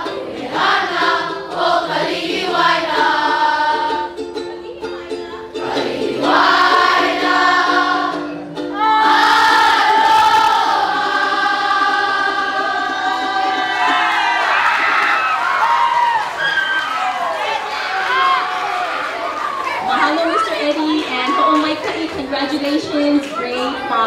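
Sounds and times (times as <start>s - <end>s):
choir singing: 0.0s - 4.2s, 5.4s - 14.5s
instrumental accompaniment: 0.0s - 14.5s.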